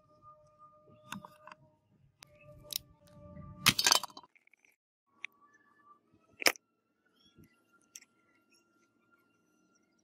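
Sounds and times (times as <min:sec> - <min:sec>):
metal parts clicking: 0:03.6 - 0:04.7.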